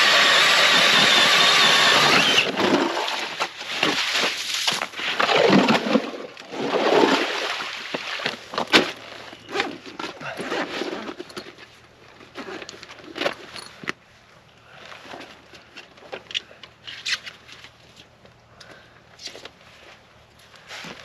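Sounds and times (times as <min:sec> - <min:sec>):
scraping and crunching on ice: 0:00.0 - 0:13.8.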